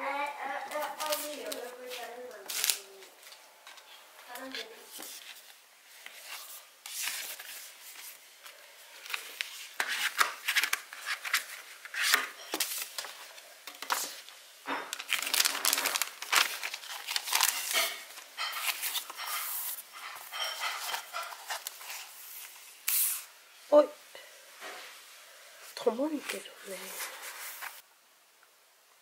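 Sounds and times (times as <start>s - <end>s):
packaging crinkling and tearing: 0.7s - 3.4s, 6.1s - 23.2s.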